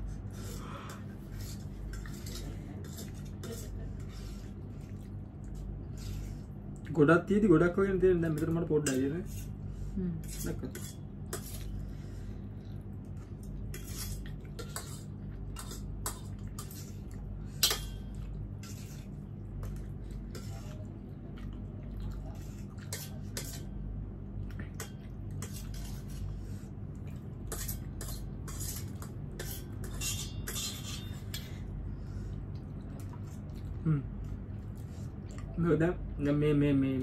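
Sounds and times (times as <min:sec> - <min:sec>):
steady low hum: 0:00.0 - 0:37.0
cutlery clinking against bowls: 0:08.3 - 0:09.2, 0:17.6 - 0:18.3, 0:27.5 - 0:31.6.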